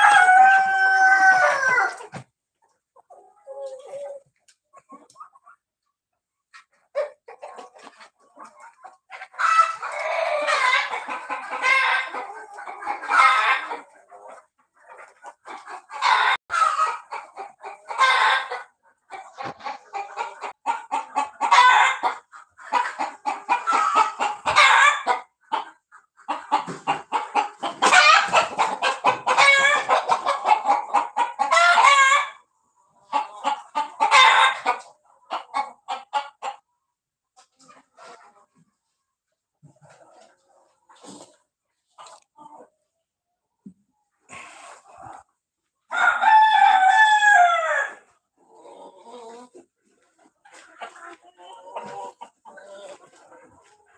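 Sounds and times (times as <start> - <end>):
rooster crowing: 0.0 - 1.9
chickens clucking: 0.0 - 53.9.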